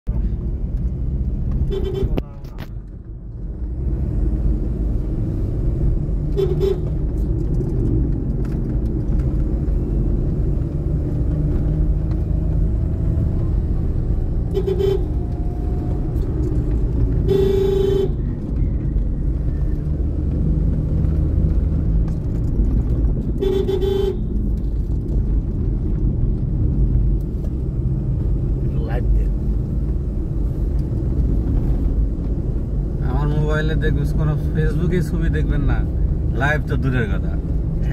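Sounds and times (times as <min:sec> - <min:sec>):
car engine and road rumble: 0:00.0 - 0:37.9
vehicle horn honking: 0:01.7 - 0:02.2, 0:06.3 - 0:07.0, 0:14.5 - 0:15.2, 0:17.2 - 0:18.2, 0:23.4 - 0:24.2.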